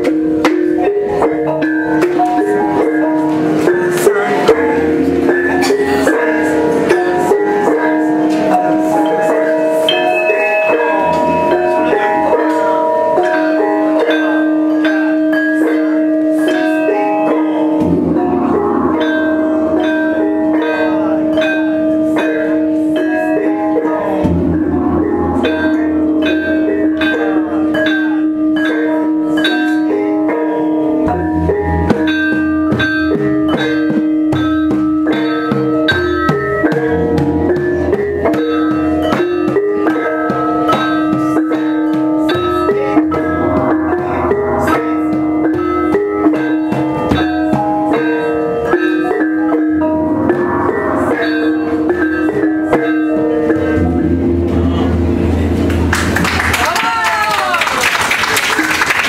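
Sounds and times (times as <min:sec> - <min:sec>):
metallophone keys struck with mallets: 0:00.0 - 0:59.0
large gong humming low: 0:02.3 - 0:29.0, 0:31.0 - 0:56.5.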